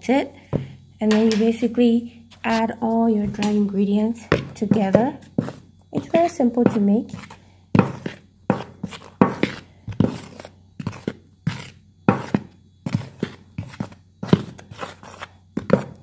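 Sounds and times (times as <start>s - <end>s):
utensil stirring flour in bowl: 3.3s - 16.0s.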